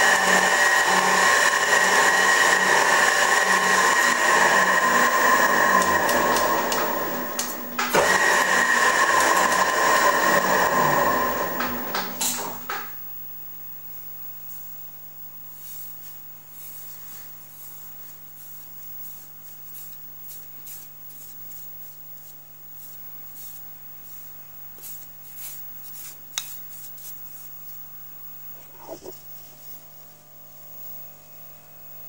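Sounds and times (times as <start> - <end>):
low electrical hum: 10.7 - 32.0.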